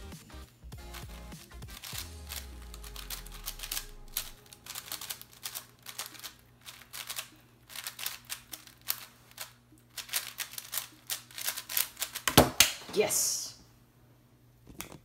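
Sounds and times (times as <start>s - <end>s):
plastic puzzle cube clicking: 1.8s - 12.4s.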